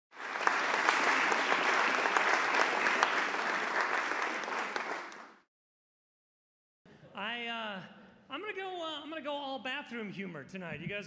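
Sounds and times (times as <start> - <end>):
audience applauding: 0.1 - 5.5.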